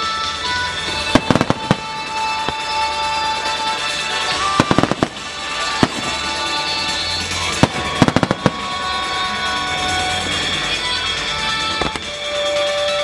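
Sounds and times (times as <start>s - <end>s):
music playing: 0.0s - 13.0s
firework bangs: 0.8s - 9.8s, 11.8s - 12.3s.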